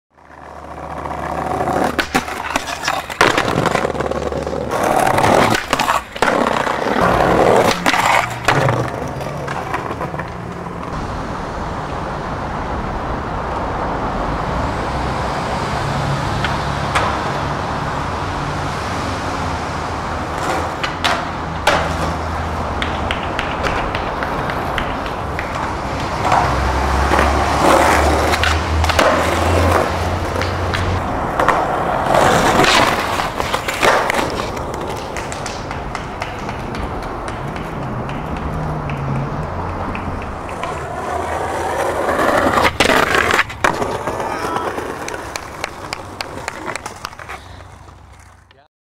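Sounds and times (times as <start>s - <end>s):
skateboard wheels rolling on concrete: 0.1s - 48.7s
skateboard scraping concrete ledge: 0.2s - 11.0s, 16.4s - 48.5s
skateboard tail popping and landing: 0.2s - 11.0s, 20.2s - 48.5s.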